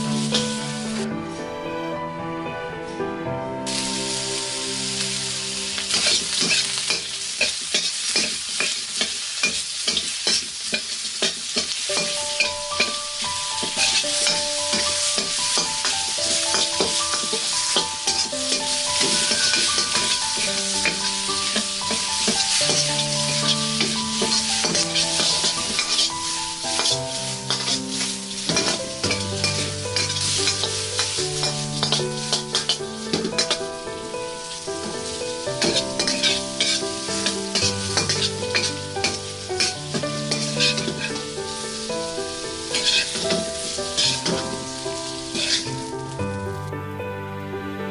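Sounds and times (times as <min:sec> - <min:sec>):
shrimp sizzling in a wok: 0:00.0 - 0:01.4, 0:03.6 - 0:46.7
spatula scraping a wok: 0:00.1 - 0:01.0, 0:03.7 - 0:46.0.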